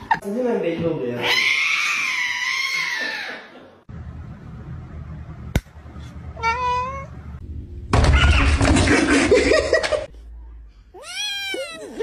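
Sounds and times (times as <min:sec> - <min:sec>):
cat screaming: 0:01.2 - 0:03.5, 0:08.0 - 0:08.8, 0:11.0 - 0:12.0
cat meowing: 0:06.4 - 0:07.2, 0:11.0 - 0:12.0.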